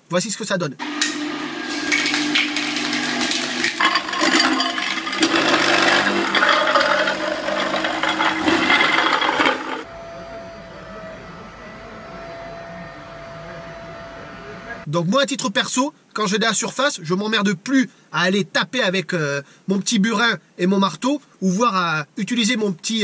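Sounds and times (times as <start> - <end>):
floor scraper cracking tiles: 0.8 - 9.9
motor hum: 0.8 - 10.6
ride-on scraper machine hum: 0.8 - 14.8.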